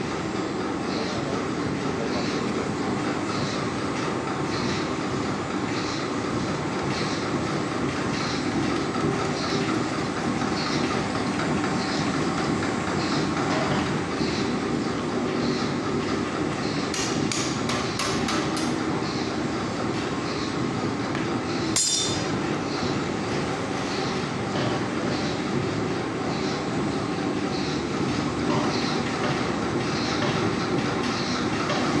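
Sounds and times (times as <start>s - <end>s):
sharp clicks and knocks: 16.9s - 18.8s
metallic clank with ring: 21.8s - 22.3s.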